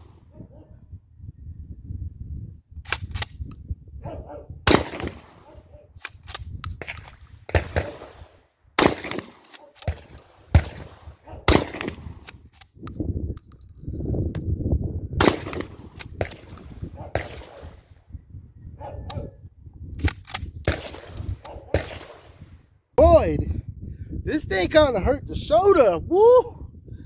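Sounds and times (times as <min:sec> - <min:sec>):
wind rumble on microphone: 0:00.0 - 0:27.0
shotgun shots with echo: 0:04.7 - 0:05.6, 0:06.8 - 0:12.2, 0:15.2 - 0:17.8, 0:20.7 - 0:22.4.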